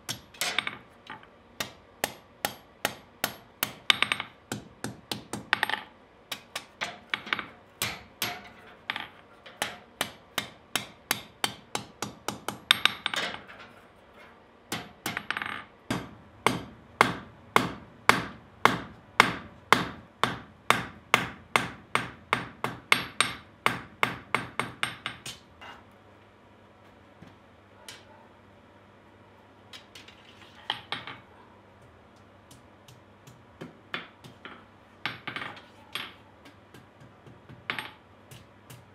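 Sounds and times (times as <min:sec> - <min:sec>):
low steady hum: 0:00.0 - 0:38.9
hammer striking hot steel on anvil: 0:01.6 - 0:08.7, 0:09.5 - 0:13.5, 0:14.7 - 0:25.8.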